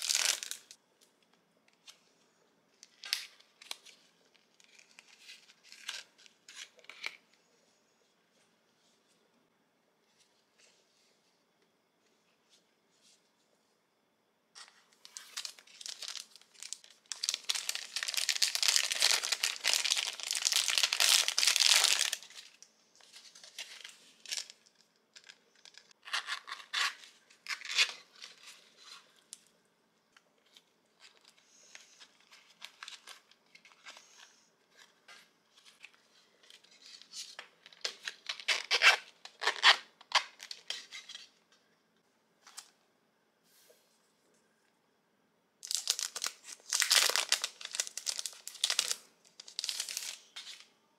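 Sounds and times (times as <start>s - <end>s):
plastic packaging crinkling and tearing: 0.0s - 0.8s, 15.0s - 29.0s, 45.6s - 50.6s.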